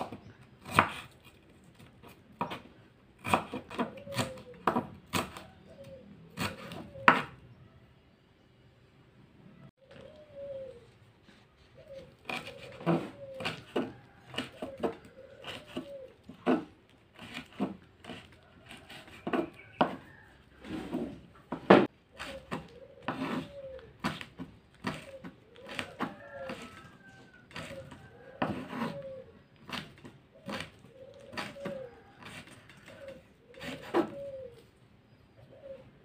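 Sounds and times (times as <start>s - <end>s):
dove cooing: 3.2s - 7.4s, 9.8s - 17.3s, 19.4s - 36.0s.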